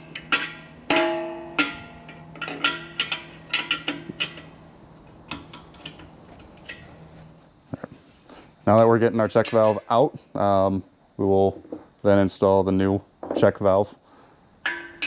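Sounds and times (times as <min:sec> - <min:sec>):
wrench clinking against metal: 0:00.0 - 0:04.5, 0:09.2 - 0:10.2.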